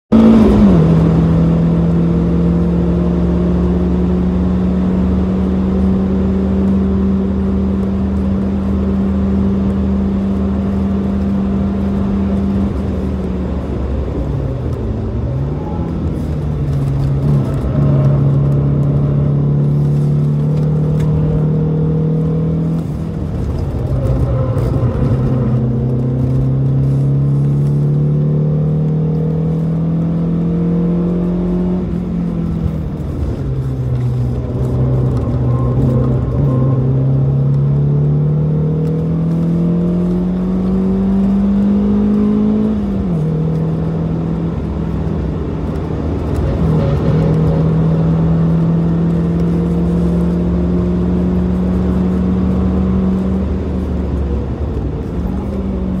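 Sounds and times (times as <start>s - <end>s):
car engine at racing speed: 0.1s - 56.0s
wind and road noise: 0.1s - 56.0s.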